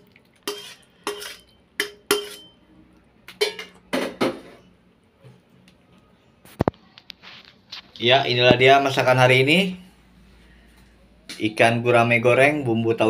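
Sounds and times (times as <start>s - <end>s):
metal spatula scraping a frying pan: 0.4s - 2.6s.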